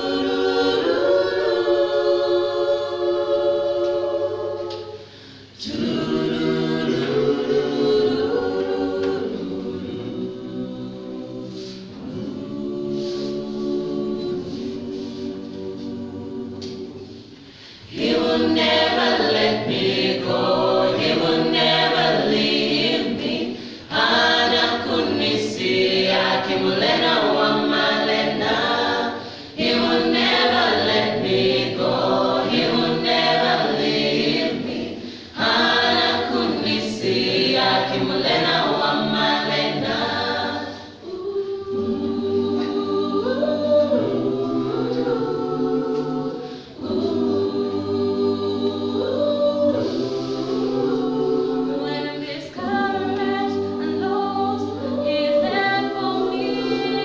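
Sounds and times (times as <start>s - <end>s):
choir singing gospel song: 0.0s - 57.0s.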